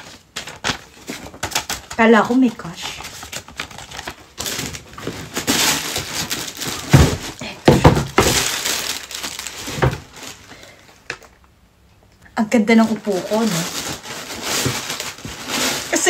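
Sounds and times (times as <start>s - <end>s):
wrapping paper crinkling: 0.0s - 11.4s, 12.7s - 16.0s
cardboard box knocks: 6.9s - 8.5s.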